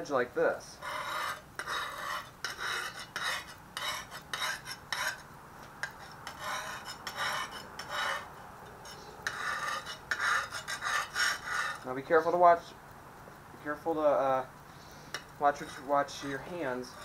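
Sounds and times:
sharpening stone grinding on steel: 0.8 - 5.2, 5.8 - 11.9, 15.1 - 17.0.

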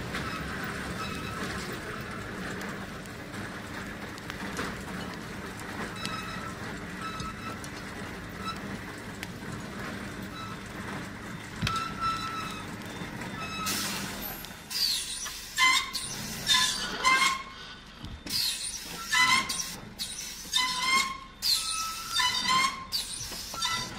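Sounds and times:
cable winch engine droning: 0.0 - 23.9
pulleys squeaking and squealing: 0.2 - 1.7, 5.9 - 7.8, 10.2 - 23.9.

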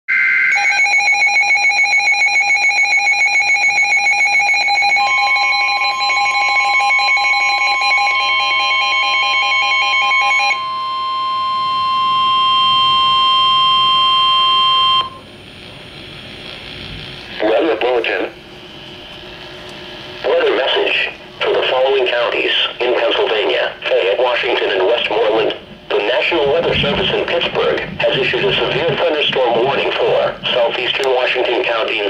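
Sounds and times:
long steady alert tone: 0.1 - 15.4
rapid pulsing alert alarm: 0.5 - 15.2, 24.2 - 32.0.

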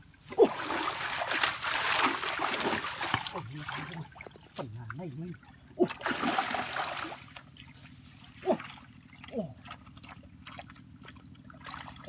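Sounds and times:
hands splashing in water: 0.4 - 4.0.

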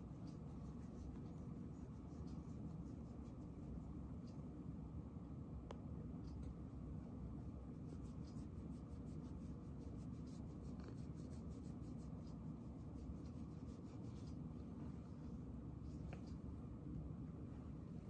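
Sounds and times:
fingers scratching cat fur: 0.0 - 3.8, 7.4 - 16.4
low steady hum: 0.0 - 18.0.

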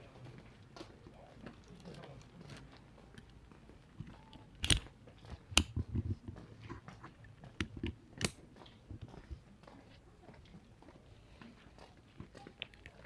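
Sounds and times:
footsteps on pavement: 8.4 - 13.0.

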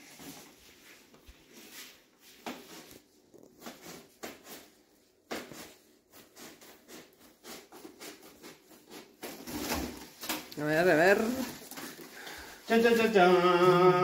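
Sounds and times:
foil insulation rustling: 0.0 - 14.0.

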